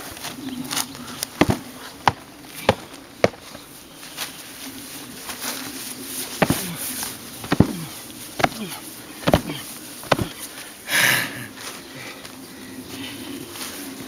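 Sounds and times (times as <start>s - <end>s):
steady low buzz: 0.0s - 10.9s
sharp knocks: 6.4s - 6.7s, 7.4s - 7.8s, 8.4s - 8.6s, 9.2s - 10.3s.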